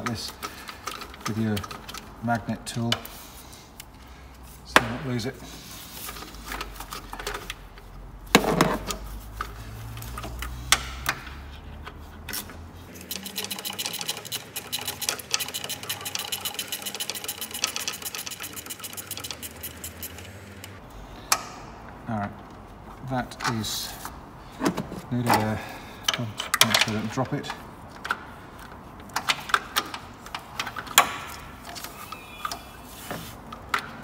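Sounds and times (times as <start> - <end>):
socket ratchet clicking: 12.9 - 20.7.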